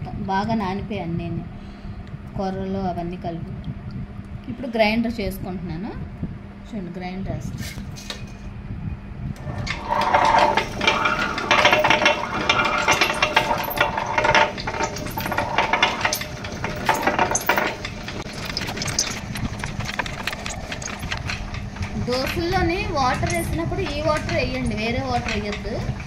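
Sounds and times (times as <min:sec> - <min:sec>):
grinder motor hum: 0:09.4 - 0:25.2
rough rattling grinding: 0:09.4 - 0:26.0.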